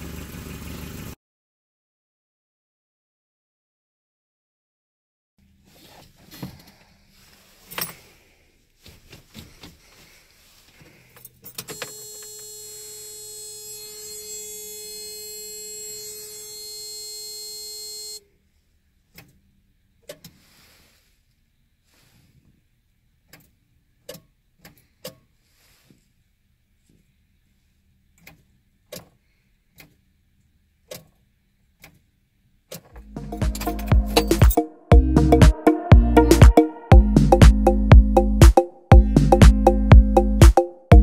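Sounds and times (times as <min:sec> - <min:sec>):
car warning buzzer: 0:11.6 - 0:18.2
keys jingling: 0:33.3 - 0:34.6.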